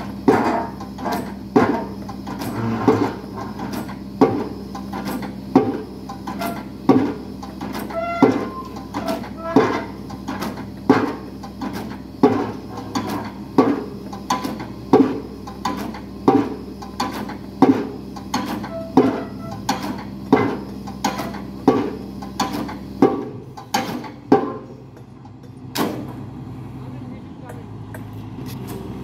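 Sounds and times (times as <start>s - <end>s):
engine hum: 0.0s - 29.0s.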